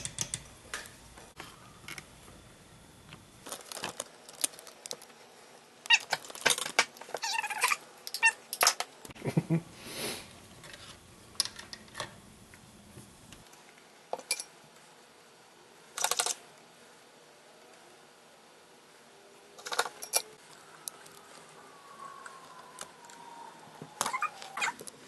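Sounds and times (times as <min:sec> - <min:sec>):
small parts clicking on workbench: 0:00.0 - 0:01.0
faint falling tone: 0:20.5 - 0:24.9.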